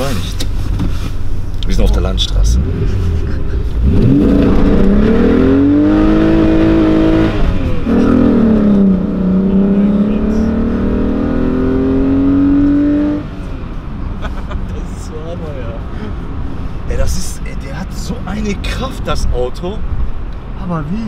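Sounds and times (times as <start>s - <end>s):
car engine accelerating hard: 1.8s - 13.4s.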